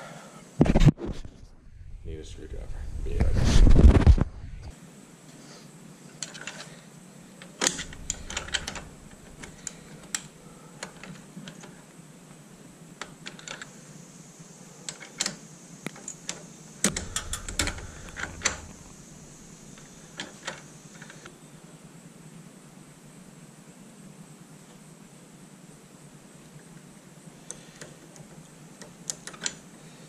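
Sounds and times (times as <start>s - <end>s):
screwdriver clicking on metal: 7.4s - 11.7s, 14.9s - 18.9s.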